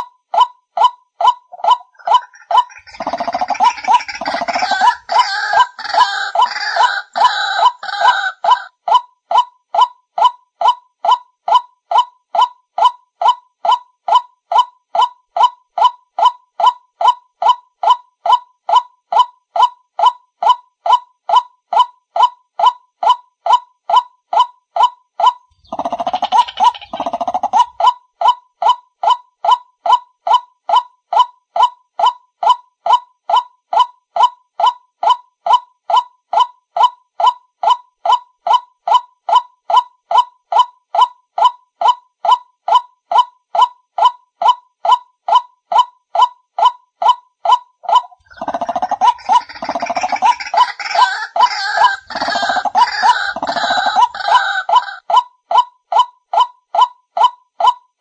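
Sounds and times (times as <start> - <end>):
harsh overlapping bird calls: 0.0 - 12.5, 25.2 - 28.0, 46.6 - 57.8
waterhen calling: 1.5 - 8.7, 47.9 - 55.0.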